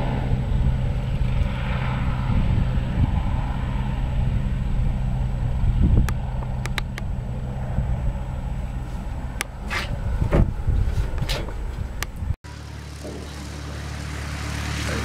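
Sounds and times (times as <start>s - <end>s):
helicopter rotor drone: 0.0s - 10.7s, 11.5s - 15.0s
propeller plane engine drone: 0.0s - 15.0s
sharp clicks: 6.0s - 7.1s.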